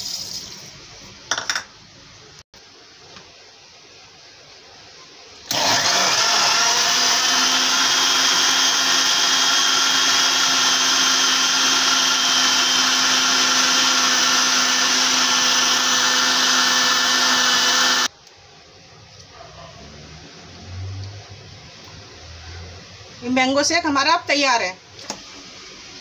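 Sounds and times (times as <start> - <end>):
mixer grinder motor running: 5.5 - 18.1.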